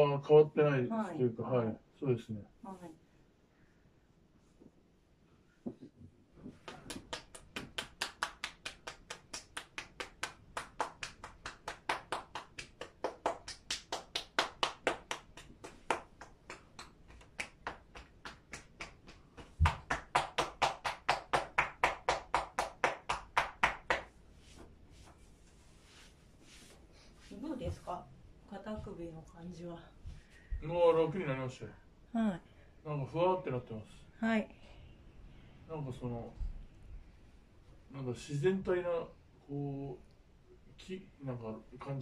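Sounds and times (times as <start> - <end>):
hands slapping in massage: 5.7 - 25.2.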